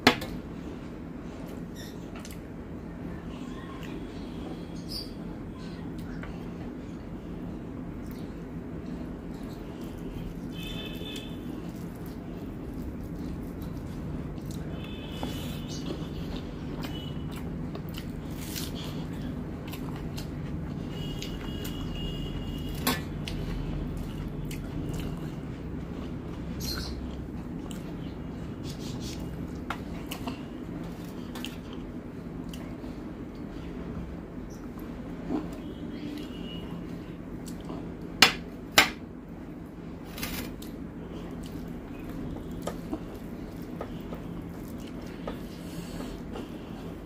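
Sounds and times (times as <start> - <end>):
steady low hum: 0.0 - 47.0
chewing: 11.2 - 21.8, 22.6 - 33.5, 40.3 - 47.0
soft ticks of mixing food: 40.6 - 47.0.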